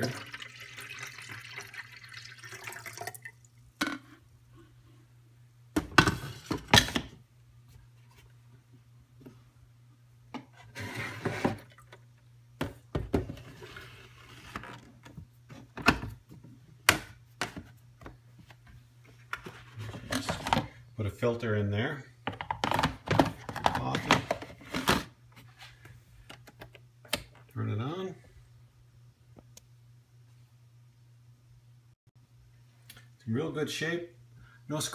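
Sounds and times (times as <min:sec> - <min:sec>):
water pouring into plastic reservoir: 0:00.0 - 0:03.6.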